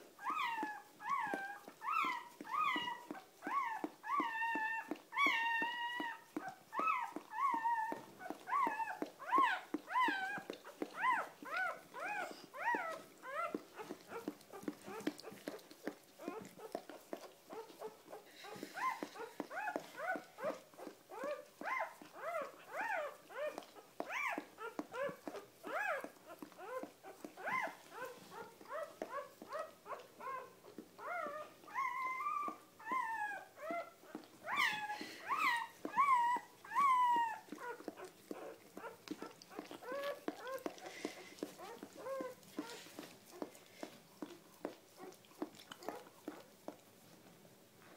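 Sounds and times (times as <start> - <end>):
newborn puppy crying: 0.2 - 46.5.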